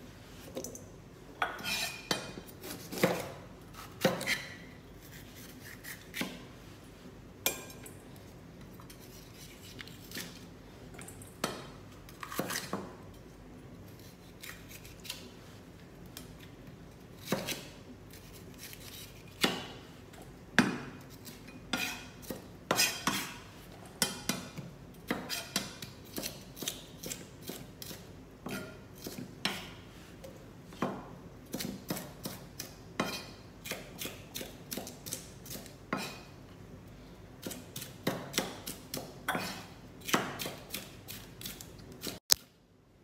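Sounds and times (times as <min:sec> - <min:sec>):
knife chopping on cutting board: 0:37.4 - 0:42.2.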